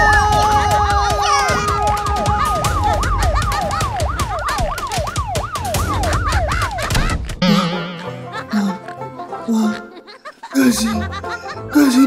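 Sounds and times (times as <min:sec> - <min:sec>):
police siren wailing: 0:00.0 - 0:08.0.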